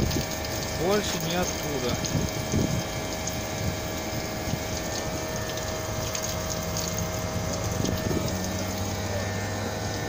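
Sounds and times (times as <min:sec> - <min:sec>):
compressor hum: 0:00.0 - 0:10.0
mid-pitched whine: 0:00.0 - 0:10.0.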